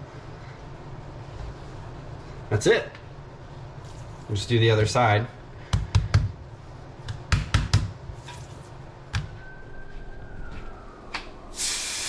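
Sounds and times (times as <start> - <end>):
faint steady hum: 0.0 - 12.0
kitchen taps and knocks: 7.2 - 8.0.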